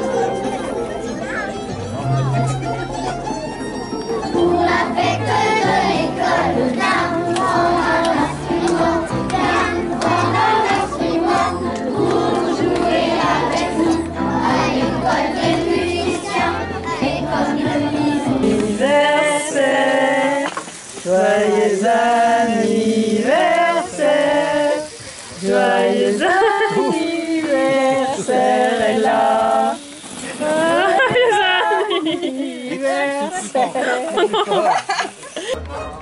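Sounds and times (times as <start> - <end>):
music with bass and singing: 0.0 - 29.8
group singing unaccompanied: 4.2 - 33.9.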